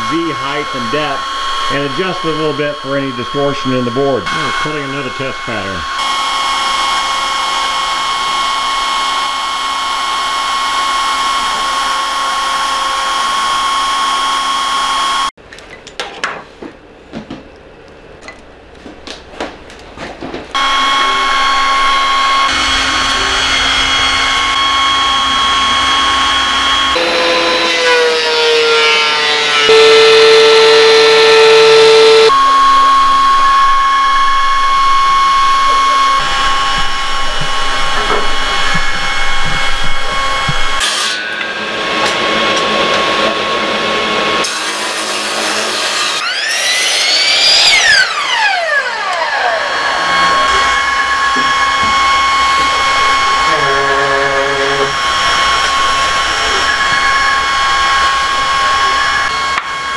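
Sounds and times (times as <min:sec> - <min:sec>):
miter saw motor spinning: 0:00.0 - 0:15.3, 0:20.5 - 0:40.8, 0:43.0 - 0:59.9
router spindle motor whine: 0:00.0 - 0:15.3, 0:20.5 - 0:59.9.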